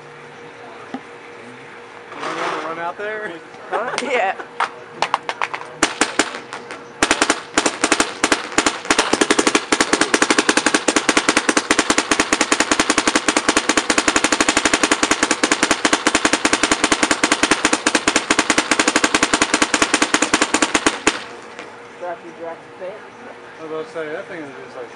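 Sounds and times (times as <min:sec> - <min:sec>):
paintball marker rapid firing: 0:05.4 - 0:21.7.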